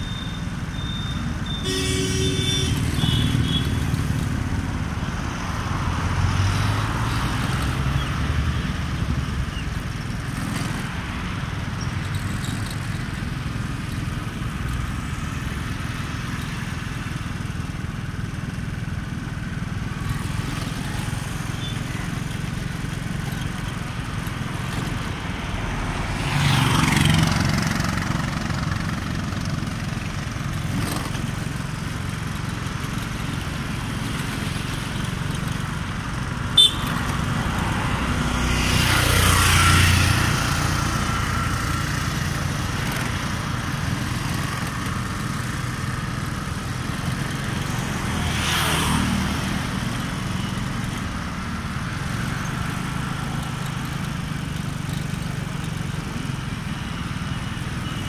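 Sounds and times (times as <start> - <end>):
road and wind noise: 0.0 - 58.0
small vehicle engine running: 0.0 - 58.0
vehicle passing by: 2.3 - 9.4, 23.8 - 29.6, 36.0 - 45.2, 47.0 - 50.3.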